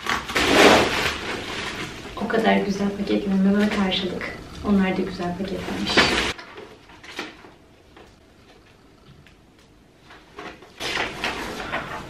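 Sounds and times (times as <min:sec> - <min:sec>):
bubble wrap rustling and crackling: 0:00.0 - 0:04.2, 0:05.4 - 0:08.2, 0:10.0 - 0:12.0.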